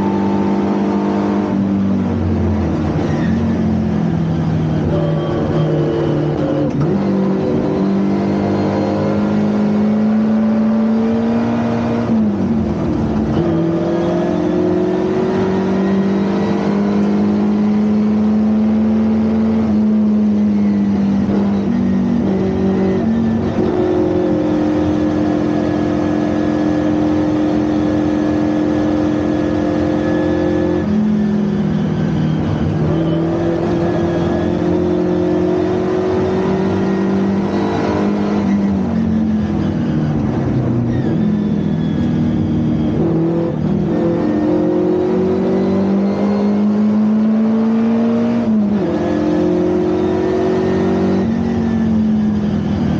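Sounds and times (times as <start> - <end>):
race car engine shifting gears: 4.7 - 28.4.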